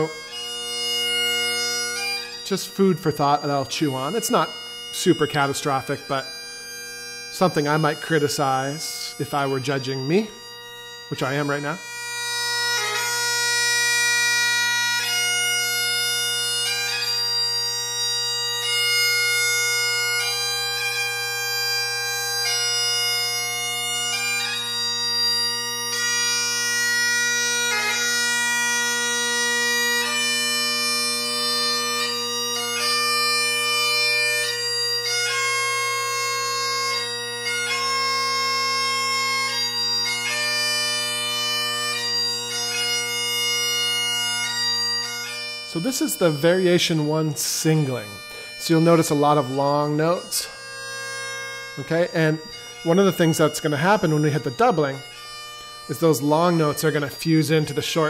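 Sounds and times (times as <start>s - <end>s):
bagpipe playing slow tune: 0.0s - 58.0s.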